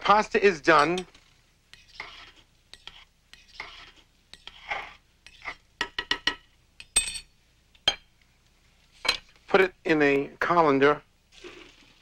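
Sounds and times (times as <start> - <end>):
metal spoon scraping metal pot: 0.8 - 5.6.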